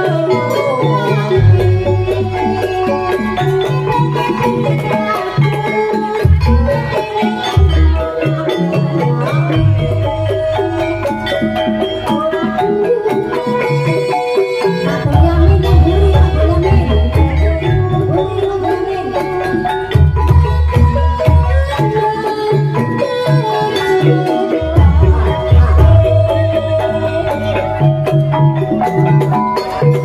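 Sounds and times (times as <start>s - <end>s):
metallophones striking notes: 0.0s - 30.0s
deep bass beats: 15.1s - 18.0s, 24.6s - 27.1s.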